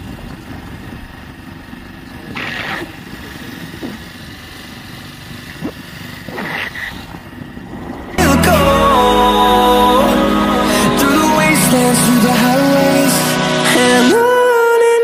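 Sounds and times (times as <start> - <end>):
motorcycle engine rumble: 0.0 - 14.2
brief higher-pitched sounds: 8.2 - 14.6.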